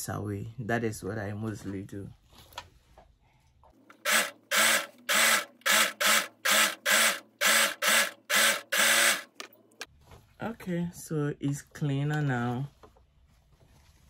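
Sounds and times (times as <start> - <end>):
overlocker stitching spurts: 3.9 - 9.5.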